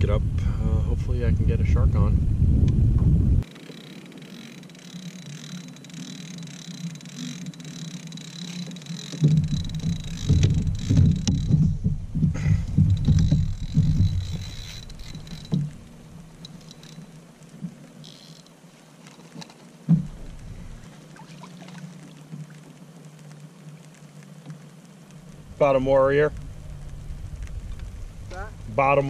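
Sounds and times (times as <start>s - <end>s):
fishing reel reeling: 3.4s - 11.6s, 12.6s - 17.3s, 17.9s - 19.6s
knocking in a kayak: 9.2s - 15.8s.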